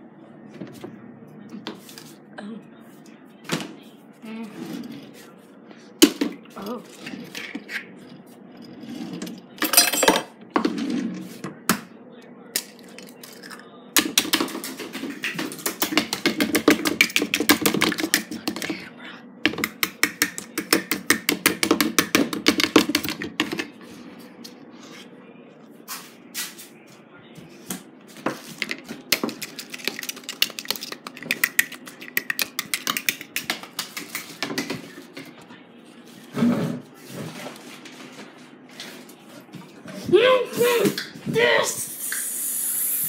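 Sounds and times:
eggs beaten in plastic bowl: 14.0s - 23.8s, 28.3s - 35.2s.

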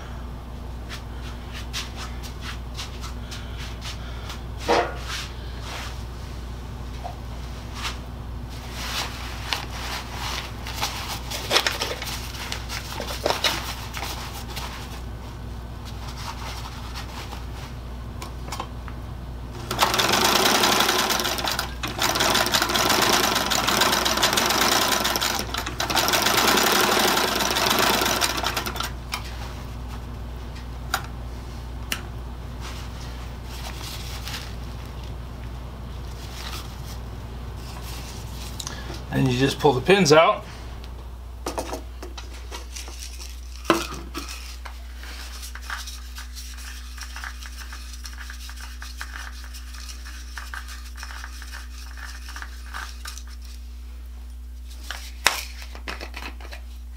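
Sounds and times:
steady low hum: 0.0s - 56.9s
sewing machine stitching: 19.6s - 29.0s.

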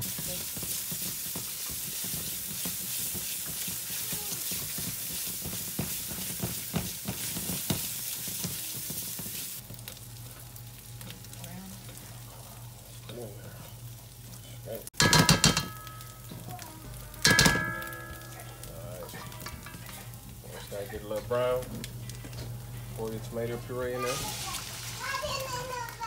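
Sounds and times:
onion sizzling in hot oil: 0.0s - 26.0s
spatula scraping and tapping pot: 0.5s - 9.3s, 15.0s - 16.5s.

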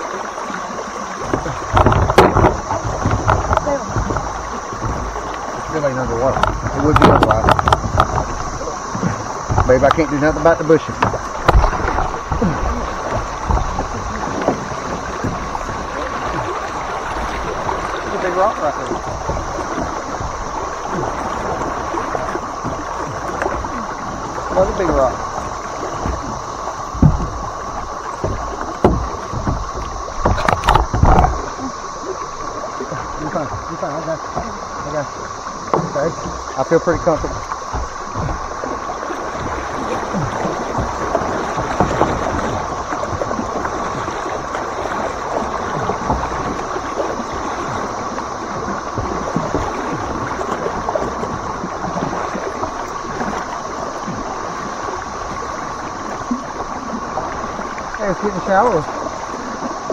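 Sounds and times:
paddle strokes and splashes: 0.0s - 59.9s
sharp knocks: 1.3s - 5.3s, 6.3s - 15.6s, 27.0s - 27.4s, 28.2s - 31.5s.

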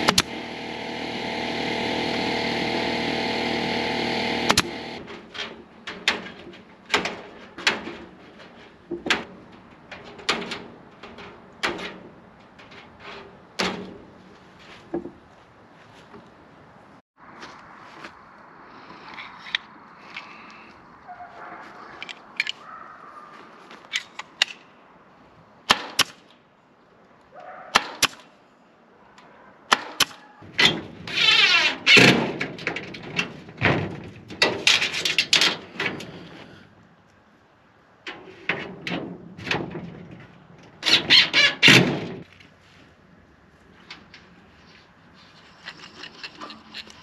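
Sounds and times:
sharp clicks: 0.0s - 1.2s, 3.3s - 5.0s
power drill driving screws into metal: 0.0s - 5.0s
rattling metal: 30.5s - 36.4s.

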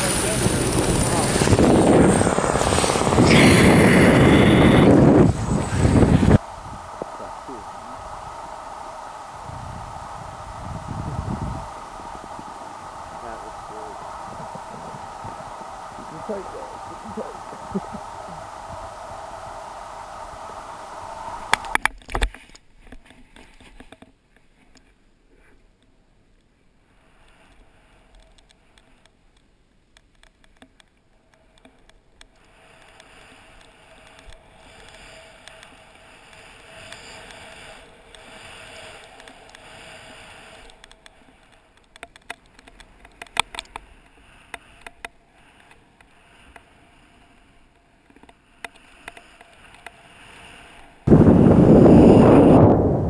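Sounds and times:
snowboard scraping over snow: 0.0s - 21.7s, 32.5s - 40.7s, 50.0s - 53.0s
wind on microphone: 0.0s - 21.8s, 51.0s - 53.0s.

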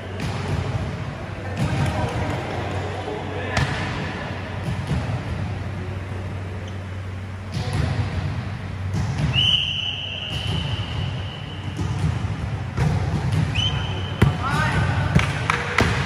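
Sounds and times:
gym ambience: 0.0s - 16.0s
long high-pitched whistle: 9.4s - 11.6s.

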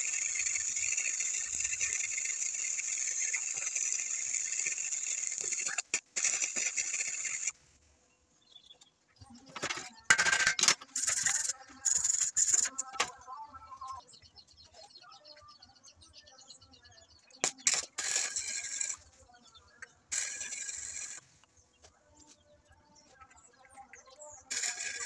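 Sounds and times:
welding arc crackle and hiss: 0.0s - 7.6s, 20.1s - 21.2s, 24.5s - 25.0s.

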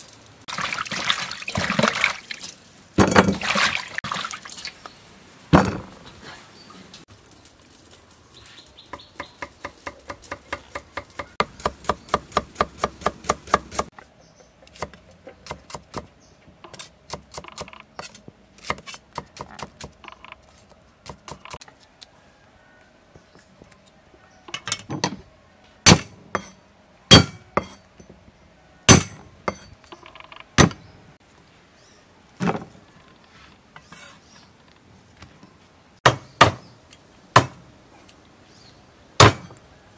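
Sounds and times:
knife chopping on wooden board: 9.2s - 13.9s.

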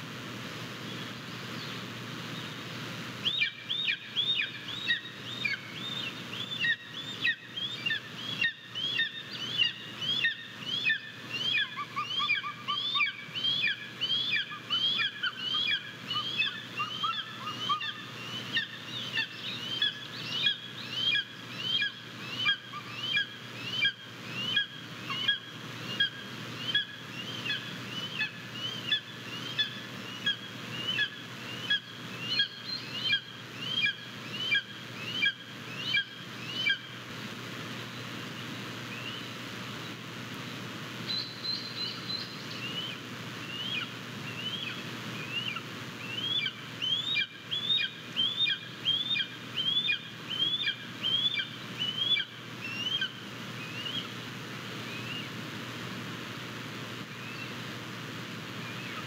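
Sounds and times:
eagle high-pitched calls: 3.2s - 36.9s, 41.2s - 54.1s.

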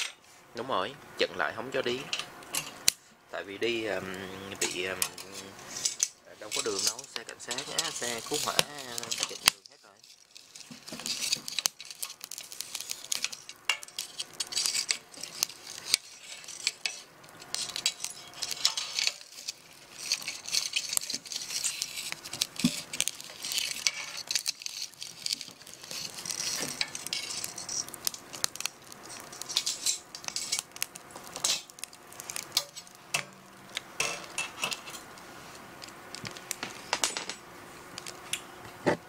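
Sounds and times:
metal spatula scraping pan: 4.6s - 9.5s, 10.4s - 33.4s.

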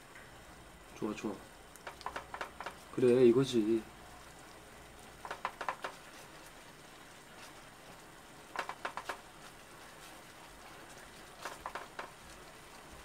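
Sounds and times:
faint steady hiss: 0.0s - 13.0s
utensil clattering against a pan: 1.8s - 2.8s, 11.4s - 12.2s.

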